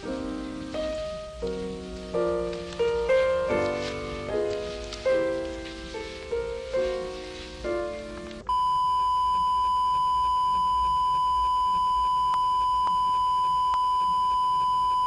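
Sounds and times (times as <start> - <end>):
music: 0.0 - 8.5
steady test-tone beep: 8.5 - 15.0.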